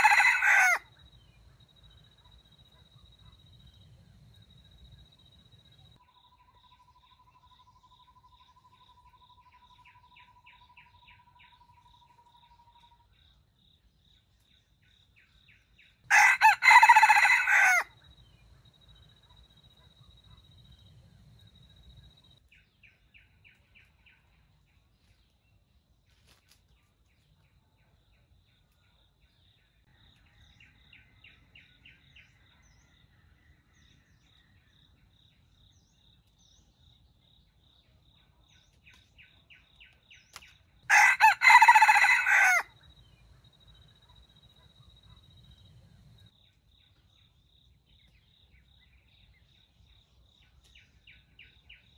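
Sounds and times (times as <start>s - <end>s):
rooster crowing: 0.0s - 0.9s, 16.1s - 18.0s, 40.9s - 42.8s
insect calls: 0.0s - 14.3s, 40.2s - 47.7s.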